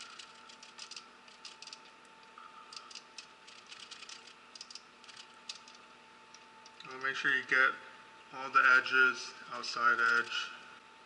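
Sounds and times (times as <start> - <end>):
basting brush dabbing glaze: 0.0 - 7.6.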